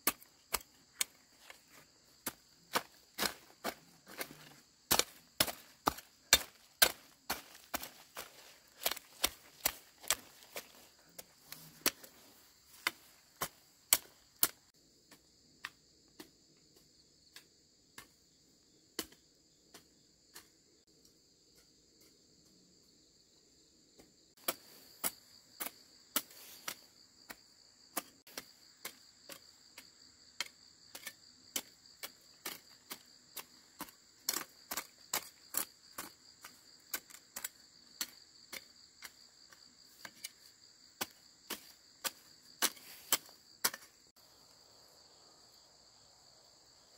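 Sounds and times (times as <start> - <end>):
hoe chopping into soil: 0.0 - 14.6, 24.4 - 44.0
insects trilling: 0.0 - 46.9.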